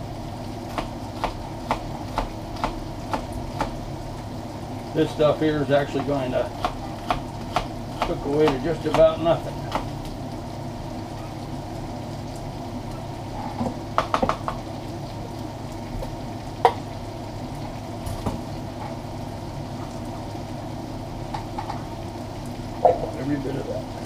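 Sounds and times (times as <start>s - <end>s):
meat sizzling in a pot: 0.0s - 24.0s
knife chopping on cutting board: 0.7s - 3.7s, 6.0s - 9.1s, 9.7s - 9.9s.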